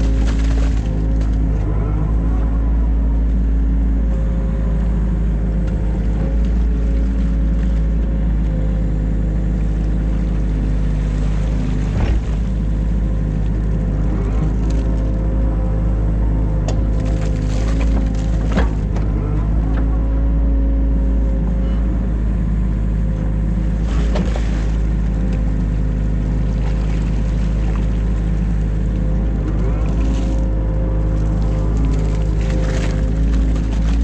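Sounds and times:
excavator diesel engine running: 0:00.0 - 0:34.0.

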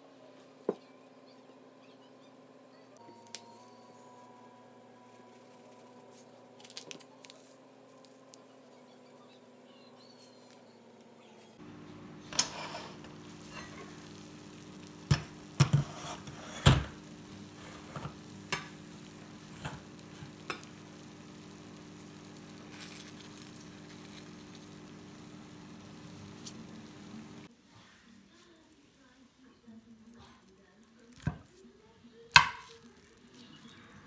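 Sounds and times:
casserole sizzling softly: 0:11.6 - 0:34.0.

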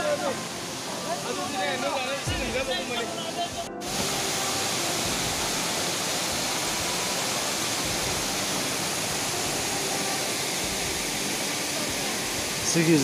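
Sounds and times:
waterfall cascading over rocks: 0:00.0 - 0:13.0.

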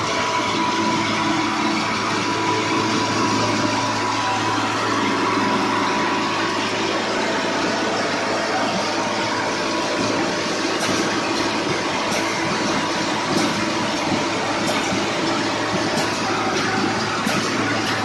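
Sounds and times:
welding machine humming and rattling: 0:00.0 - 0:18.0.

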